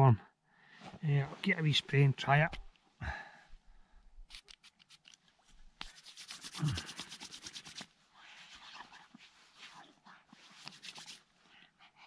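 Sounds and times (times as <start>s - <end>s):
hands rubbing together: 4.2s - 5.2s, 5.8s - 11.3s.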